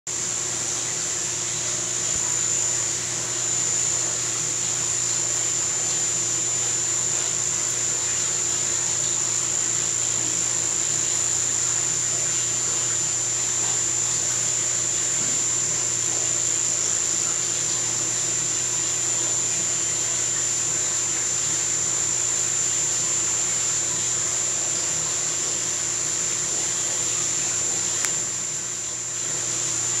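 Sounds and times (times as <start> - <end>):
machine hum: 0.1 - 30.0
high-pitched whine: 0.2 - 30.0.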